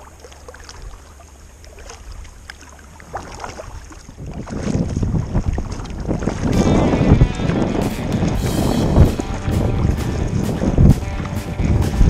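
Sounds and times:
water lapping against kayak: 0.0 - 12.0
wind buffeting microphone: 3.4 - 12.0.

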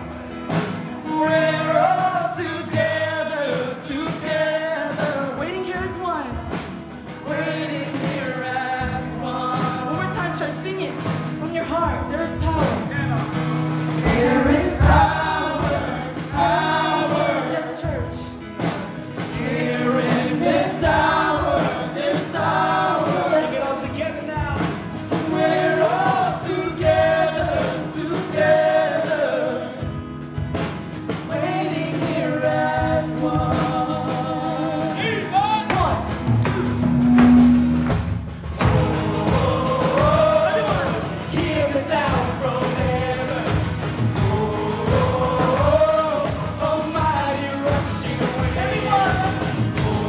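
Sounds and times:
acoustic guitar: 0.0 - 50.0
drums: 0.0 - 50.0
man singing lead: 1.0 - 18.5, 19.2 - 29.8, 31.3 - 37.0, 38.6 - 50.0
women singing backing vocals: 14.0 - 18.4, 19.2 - 24.0, 25.2 - 29.9, 31.2 - 35.3, 38.6 - 50.0.

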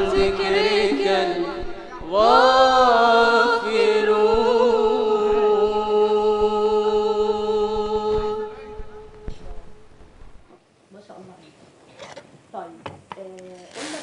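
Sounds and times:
voices singing devotional chant: 0.0 - 9.9.

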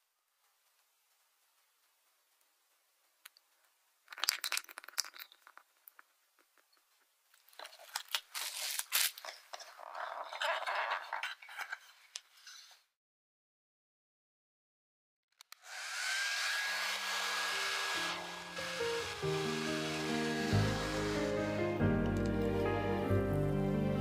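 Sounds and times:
plastic cling film crinkling: 7.3 - 12.7.

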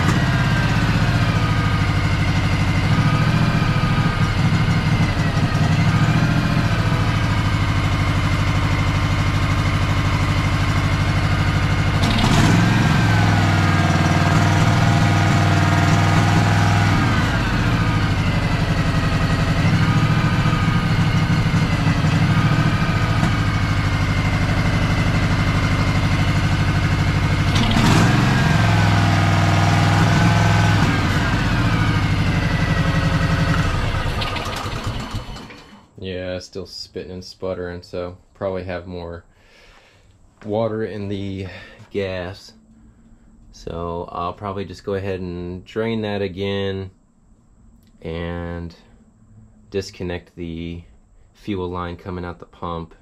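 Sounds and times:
lawn tractor engine sputtering: 0.0 - 36.0
engine pop: 33.0 - 35.8.

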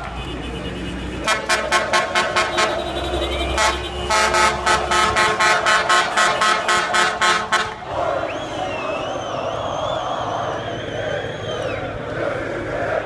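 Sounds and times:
horn tooting rapidly: 0.1 - 9.2.

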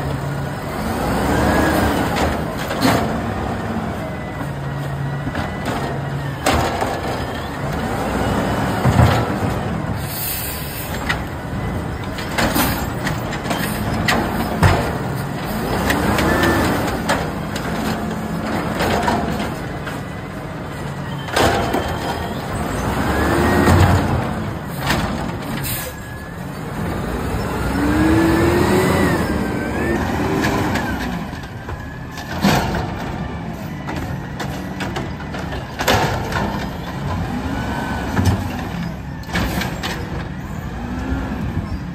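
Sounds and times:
clanks and bangs of carts: 0.0 - 41.9
garbage truck engine revving: 0.0 - 41.9
air brake hiss: 10.0 - 11.0, 25.6 - 26.0.

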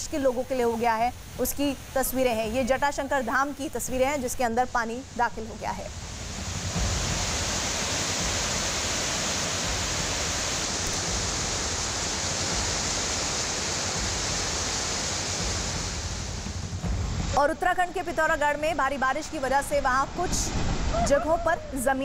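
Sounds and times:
floodwater rushing: 5.1 - 22.0.

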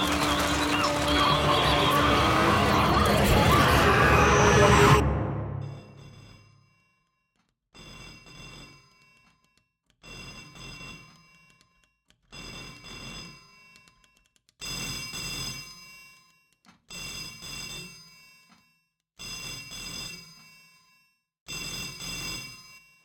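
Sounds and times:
telephone bell ringing: 0.0 - 3.2.

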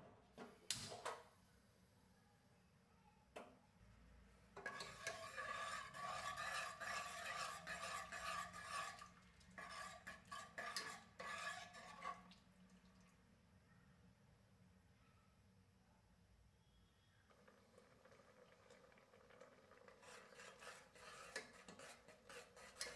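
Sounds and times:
ladle scraping metal pot: 4.6 - 12.4, 17.4 - 22.9.

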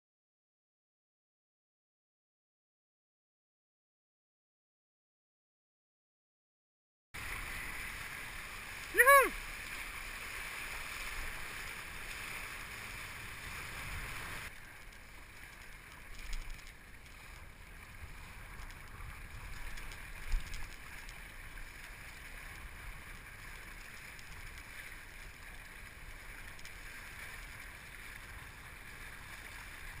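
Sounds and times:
water rushing past board: 7.2 - 30.0.

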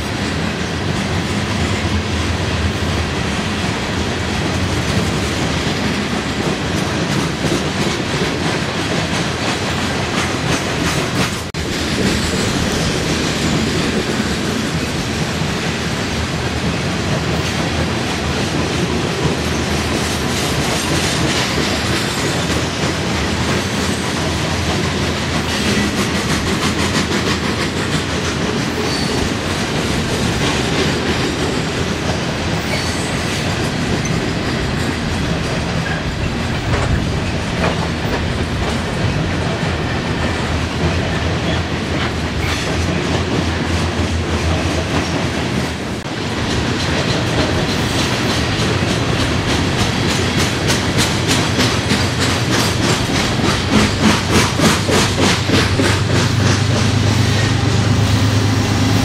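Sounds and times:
train wheels clacking on rails: 0.0 - 59.0.

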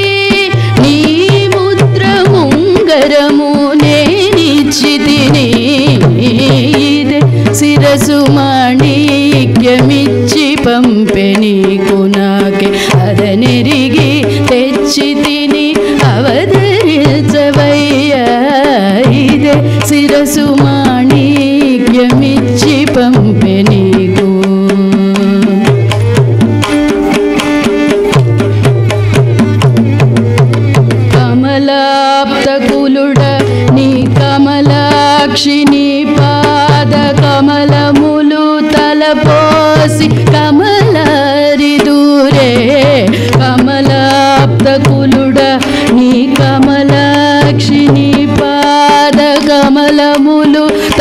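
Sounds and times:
hand drum rhythmic pattern: 0.0 - 51.0
violin melody: 0.0 - 51.0
person singing: 31.2 - 51.0.

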